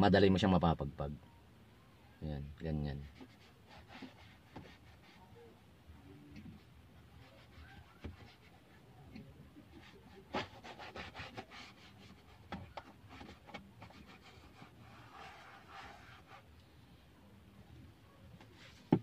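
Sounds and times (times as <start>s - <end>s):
cloth rubbing on plastic: 3.0s - 5.2s, 7.0s - 8.7s, 9.7s - 16.5s.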